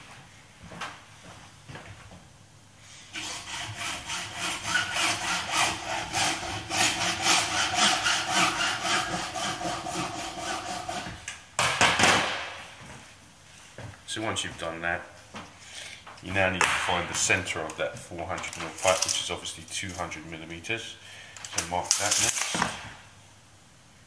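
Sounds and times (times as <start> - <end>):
hacksaw cutting plastic pipe: 3.1 - 11.3.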